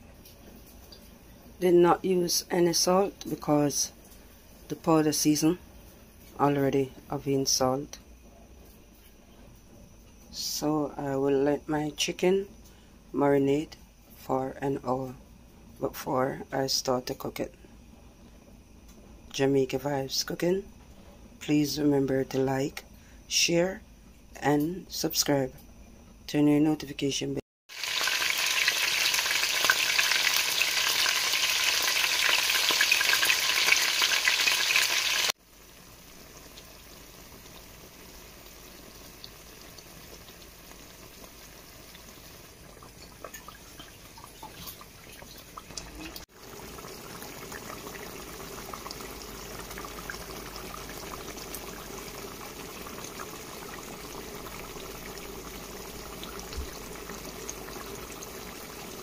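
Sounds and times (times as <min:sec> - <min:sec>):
chicken sizzling in hot oil: 0:27.7 - 0:59.0
stew bubbling: 0:27.7 - 0:59.0.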